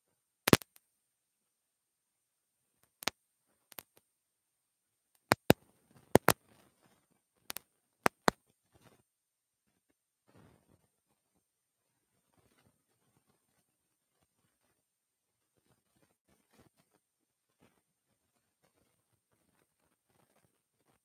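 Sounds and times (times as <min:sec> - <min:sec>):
sharp clicks: 0:05.2 - 0:06.4.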